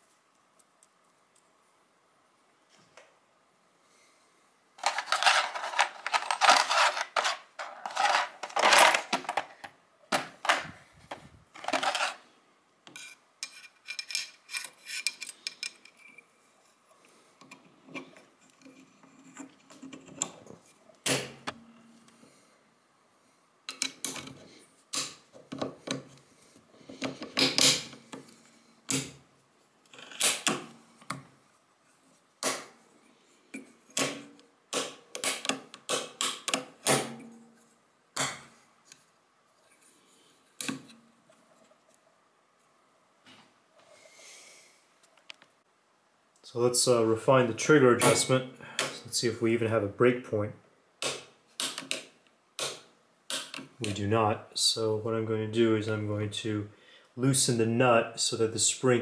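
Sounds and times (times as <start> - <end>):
metal parts scraping: 4.8 - 9.7, 11.6 - 12.3, 12.9 - 16.3.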